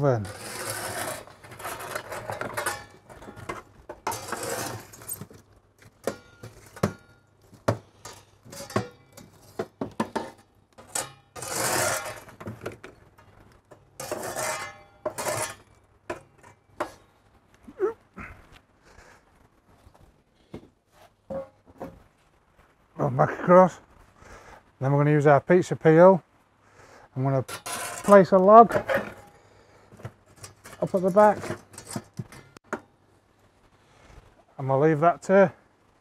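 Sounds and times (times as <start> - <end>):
pizza peel scraping oven floor: 0.0 - 5.2, 7.6 - 12.9, 13.7 - 17.0, 27.5 - 29.3, 30.4 - 32.6
peel knocking against logs and metal: 6.0 - 11.8.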